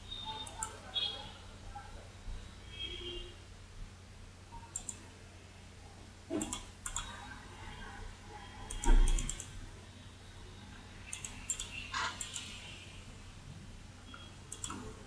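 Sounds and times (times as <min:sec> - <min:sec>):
sharp clicks: 0:08.7 - 0:09.5, 0:11.1 - 0:12.5, 0:14.5 - 0:14.8.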